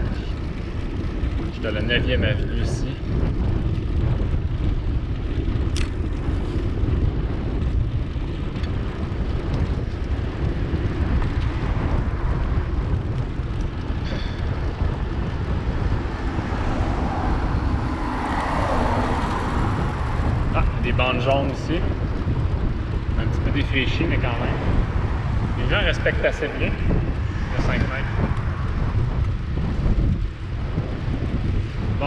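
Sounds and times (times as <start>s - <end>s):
wind rumble on microphone: 0.0s - 32.0s
car passing close by: 16.0s - 20.6s.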